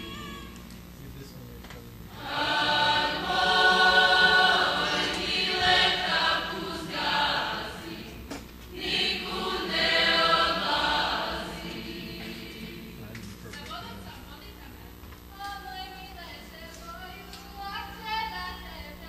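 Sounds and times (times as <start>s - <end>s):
group singing folk song: 2.1s - 13.2s.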